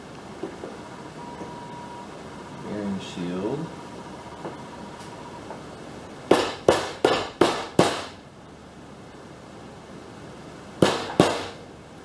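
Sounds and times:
hammer tapping on metal: 0:06.3 - 0:08.1, 0:10.8 - 0:11.6.

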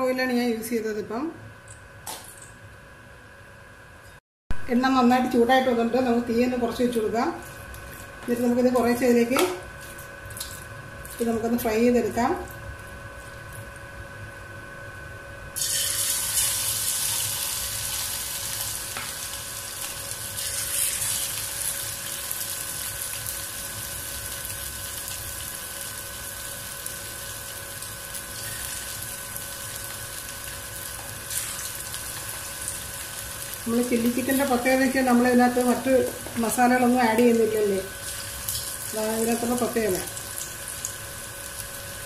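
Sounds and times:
chicken frying in oil: 0:15.6 - 0:42.0.

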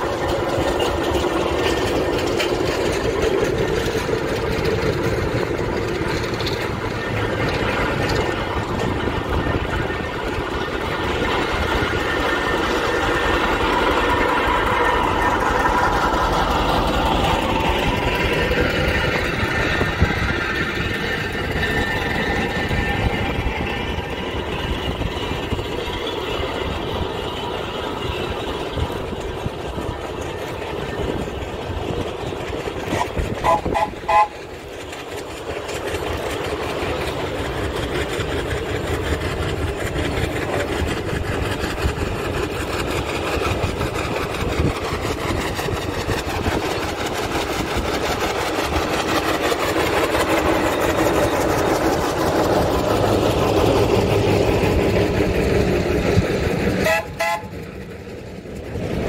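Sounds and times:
steam vehicles moving: 0:00.0 - 0:59.0
steam whistle toots: 0:33.0 - 0:34.4, 0:56.8 - 0:57.6.

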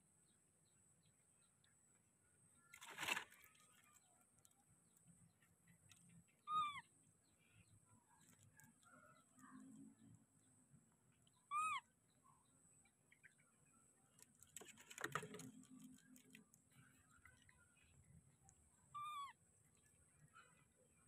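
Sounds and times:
brief rustle: 0:02.7 - 0:04.0, 0:14.2 - 0:16.5
short high animal calls: 0:06.4 - 0:06.9, 0:11.4 - 0:11.9, 0:18.9 - 0:19.4.

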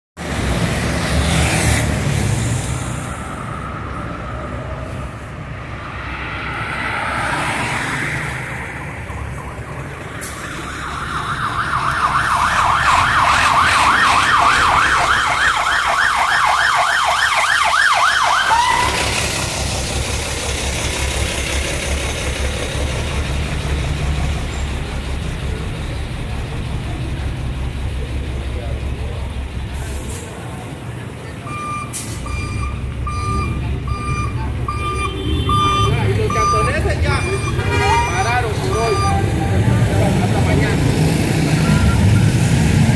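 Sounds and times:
low street rumble: 0:00.2 - 0:42.9
ambulance siren yelp: 0:08.2 - 0:19.2, 0:31.5 - 0:39.8.

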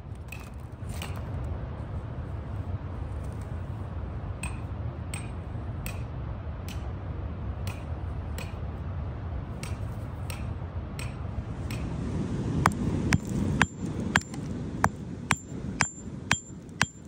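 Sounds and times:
low steady rumble: 0:00.0 - 0:17.0
hammer tapping on stone: 0:12.7 - 0:17.0.

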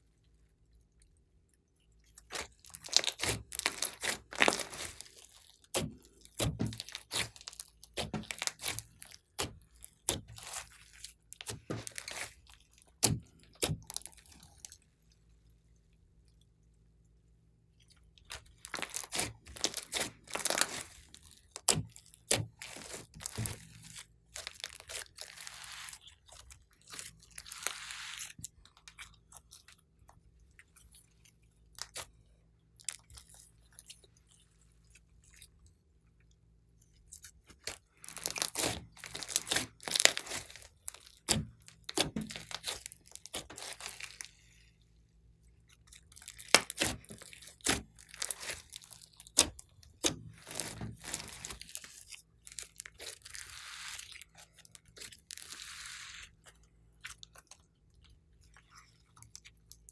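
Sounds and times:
hands squishing slime: 0:02.1 - 0:14.8, 0:17.9 - 0:36.0, 0:36.6 - 0:59.9
wet crackling and popping clicks: 0:45.7 - 0:51.8.

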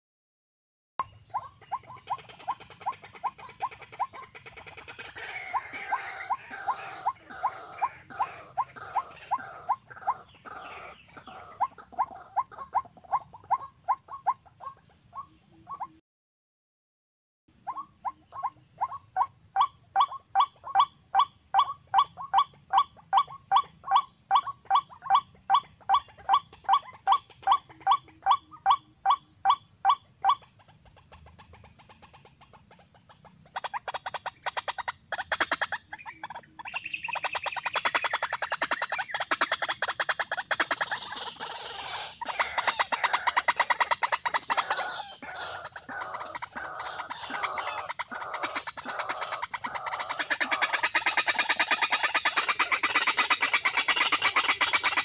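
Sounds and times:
bird calling hollow notes: 0:33.5 - 0:55.0.

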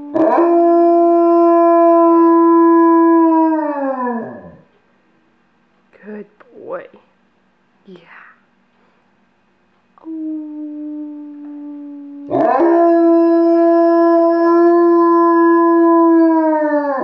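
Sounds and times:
dog howling: 0:00.0 - 0:04.7, 0:10.1 - 0:17.0.

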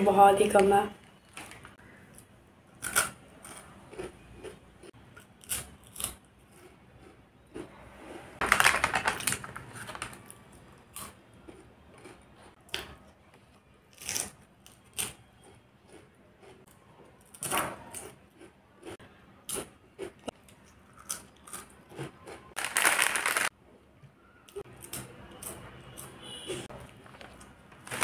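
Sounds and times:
snack crunching being eaten: 0:01.3 - 0:07.7, 0:08.5 - 0:12.8, 0:17.9 - 0:23.5
foil packet crinkling: 0:08.4 - 0:10.4, 0:22.6 - 0:23.5, 0:27.0 - 0:28.0.

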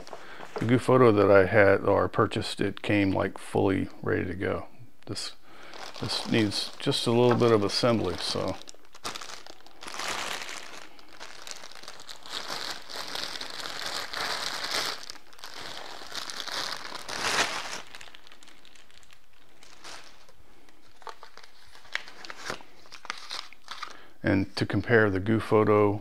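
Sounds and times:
plastic bag crinkling: 0:05.6 - 0:24.0.

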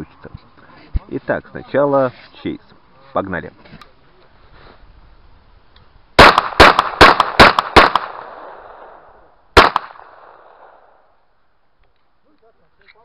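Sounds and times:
pistol shots with echo: 0:06.2 - 0:11.0.

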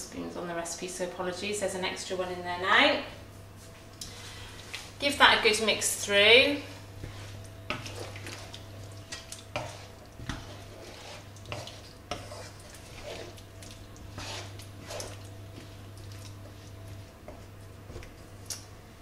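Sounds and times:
steady low hum: 0:00.0 - 0:19.0
spoon scraping a pan: 0:07.0 - 0:15.3.

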